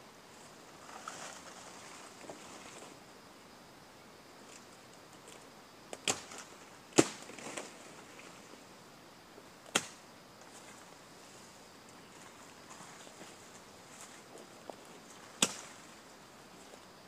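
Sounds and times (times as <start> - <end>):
machete chopping brush and wood: 6.0 - 7.7, 9.7 - 10.0, 15.2 - 15.8.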